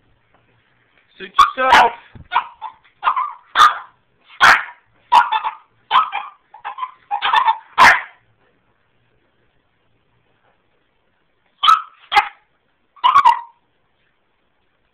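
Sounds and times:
puppy barking: 1.4s - 8.2s, 11.6s - 13.6s.

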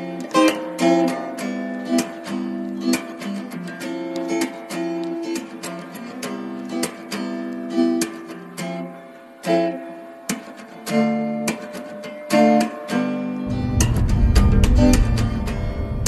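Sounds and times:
acoustic guitar strumming: 0.0s - 16.0s
low rumble: 13.5s - 16.0s.

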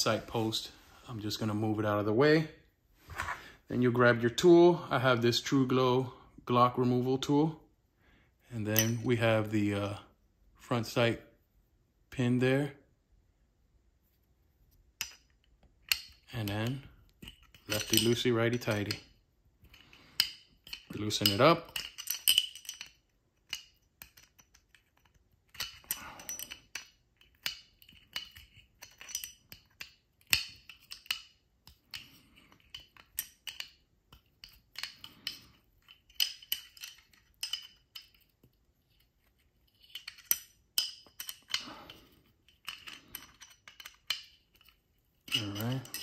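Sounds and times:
metal tool clicking and scraping: 19.6s - 46.0s.

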